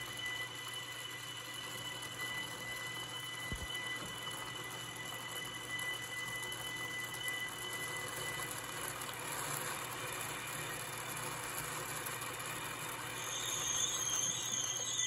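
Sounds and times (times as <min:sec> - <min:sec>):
high whine: 0:13.0 - 0:15.0.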